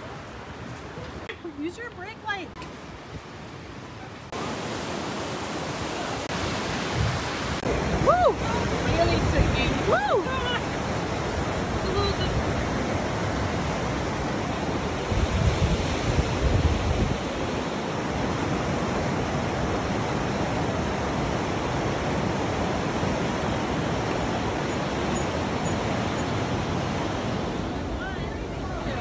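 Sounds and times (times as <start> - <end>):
whitewater rapids rushing: 3.8 - 15.1
wind buffeting microphone: 5.7 - 29.0.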